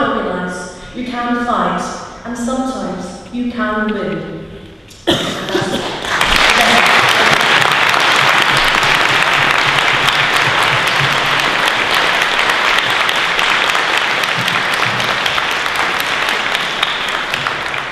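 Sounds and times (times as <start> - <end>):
audience applauding: 5.5 - 17.9.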